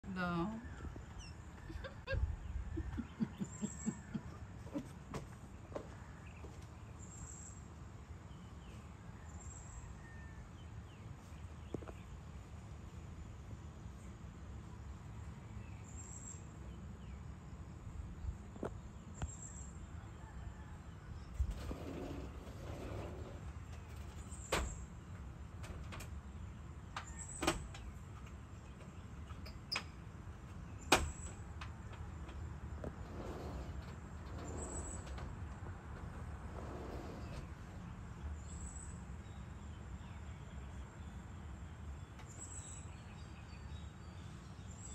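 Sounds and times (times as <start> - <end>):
distant bird calls: 0.2 - 7.7, 18.4 - 40.2.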